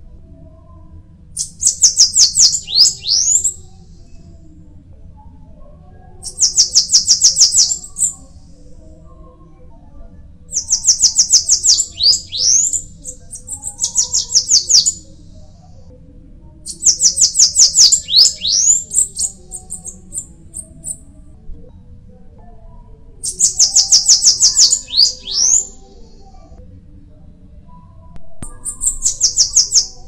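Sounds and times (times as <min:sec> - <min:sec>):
bird singing high fast notes: 0:01.4 - 0:03.6, 0:10.6 - 0:15.0, 0:16.9 - 0:19.8.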